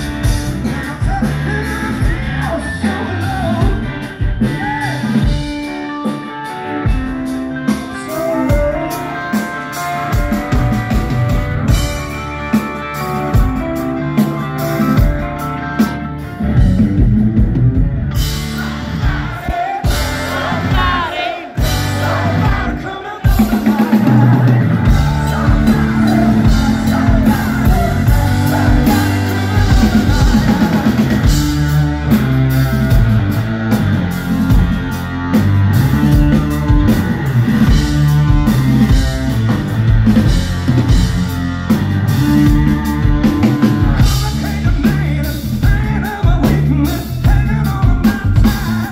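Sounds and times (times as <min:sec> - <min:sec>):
person singing: 0:00.0 - 0:06.6, 0:07.5 - 0:11.0, 0:18.2 - 0:32.3, 0:41.7 - 0:48.9
live rock band playing: 0:00.0 - 0:48.9.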